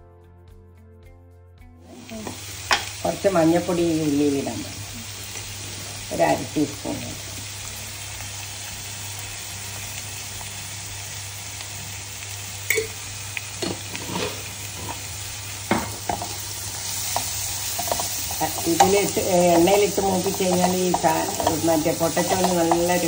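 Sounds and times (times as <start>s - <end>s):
onions sizzling in oil: 1.9s - 23.0s
wooden spatula scraping a pan: 13.6s - 23.0s
spatula knocking on pan: 15.6s - 16.4s, 17.0s - 23.0s.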